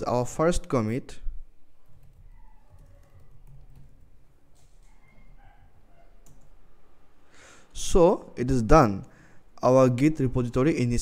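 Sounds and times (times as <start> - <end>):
quiet keyboard typing: 1.8 - 6.6.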